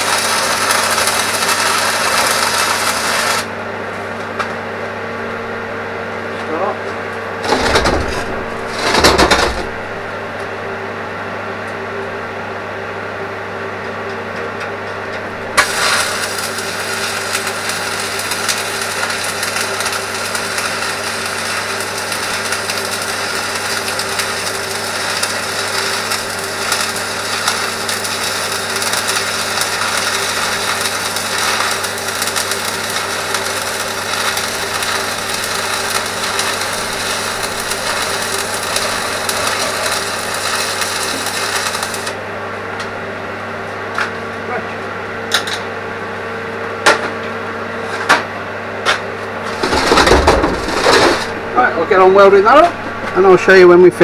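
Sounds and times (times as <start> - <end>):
welding arc crackling: 0.0 - 3.5, 7.4 - 10.4, 15.0 - 42.9, 49.4 - 54.0
welding machine humming: 0.0 - 54.0
loud knocks: 7.4 - 9.8, 49.6 - 51.4.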